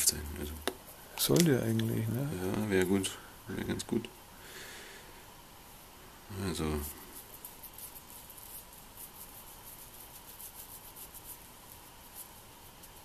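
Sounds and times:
brush scratching on friction plate: 6.8 - 13.0.

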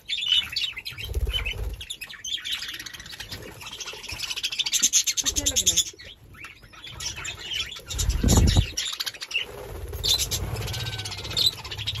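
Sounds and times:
budgerigars chirping: 0.0 - 12.0
wings flapping: 7.9 - 12.0.

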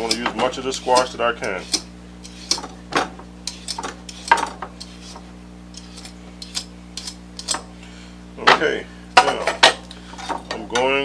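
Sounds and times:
peeler scraping squash skin: 0.0 - 2.8, 3.4 - 7.6.

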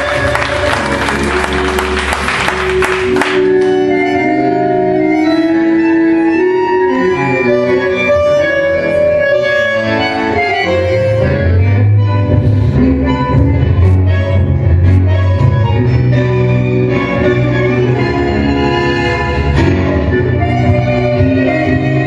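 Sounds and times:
applause: 0.0 - 3.6
tango music with reed notes: 0.0 - 22.0.

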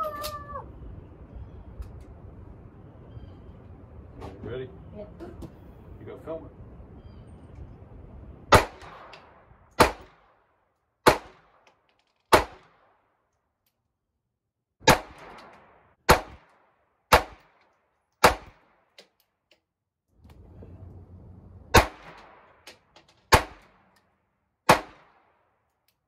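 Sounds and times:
pistol shots: 8.5 - 10.4, 11.0 - 11.6, 12.3 - 13.0, 14.8 - 17.6, 18.2 - 18.9, 21.7 - 23.8, 24.7 - 25.4.

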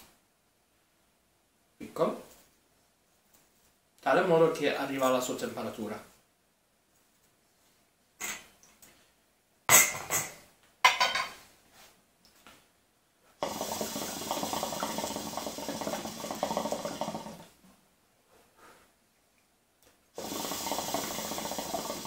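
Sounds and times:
water bubbling in hookah: 13.4 - 17.6, 20.2 - 22.0.

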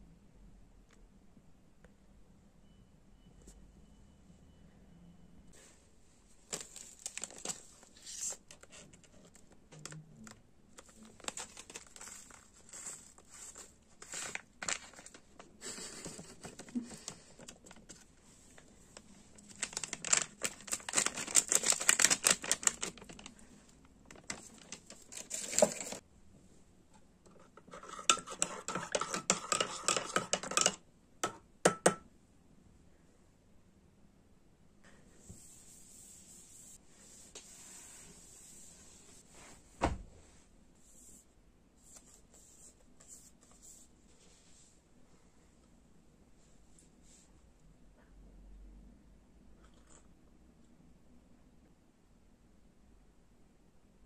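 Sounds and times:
foil sachet crinkling and tearing: 6.5 - 8.4, 10.8 - 15.2, 19.4 - 23.4, 24.1 - 26.0.

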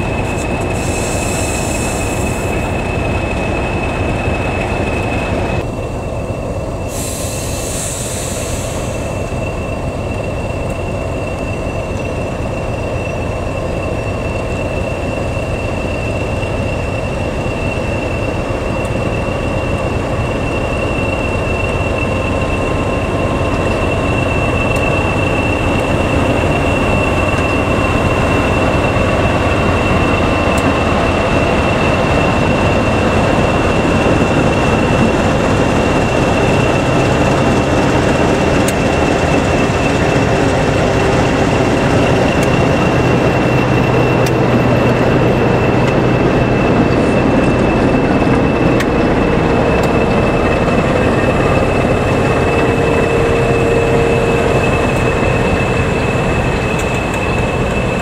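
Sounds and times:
diesel locomotive idling: 0.0 - 58.0
high steady turbo whistle: 0.0 - 58.0
steam hissing from hose: 0.2 - 3.6, 6.8 - 10.4.

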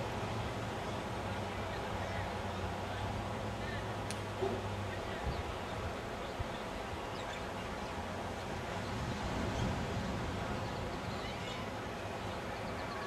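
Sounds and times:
wind: 0.0 - 13.0
small surf rushing: 4.4 - 13.0.

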